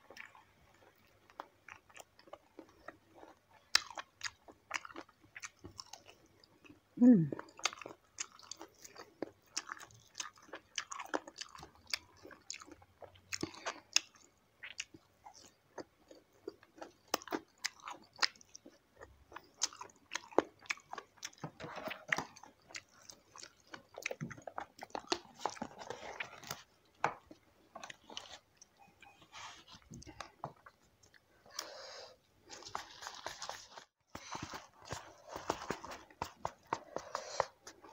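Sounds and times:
chewing: 0:00.0 - 0:37.9.

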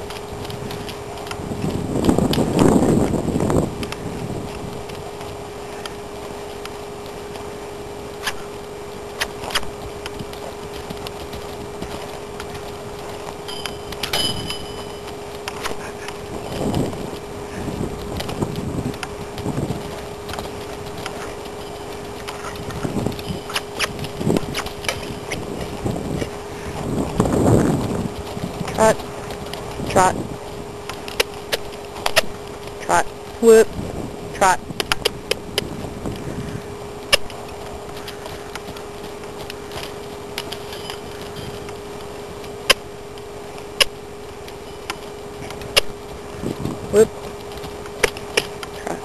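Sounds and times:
faint hum and hiss: 0:00.0 - 0:49.0
hooves thudding on dirt: 0:00.0 - 0:49.0
sharp clicks: 0:42.4 - 0:46.0.

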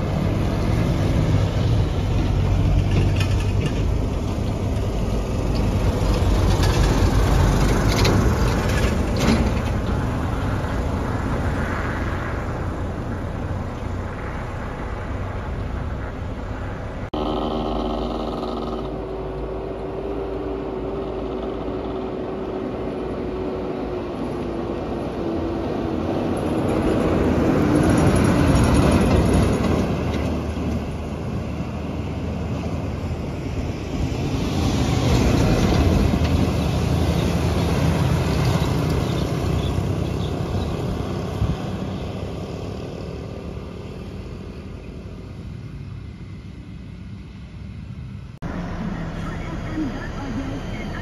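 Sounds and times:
vehicle passing: 0:00.0 - 0:51.0
garbage truck driving past: 0:18.6 - 0:45.6.

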